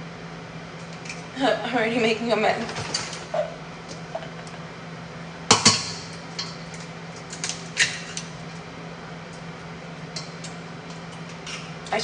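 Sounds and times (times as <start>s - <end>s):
eggs knocking on metal bowl: 5.5s - 6.1s.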